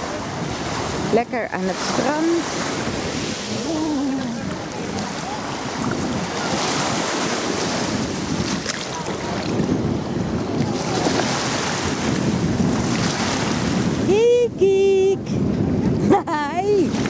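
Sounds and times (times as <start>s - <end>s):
wind buffeting microphone: 0.0s - 17.0s
waves lapping on gravel shore: 0.4s - 9.6s.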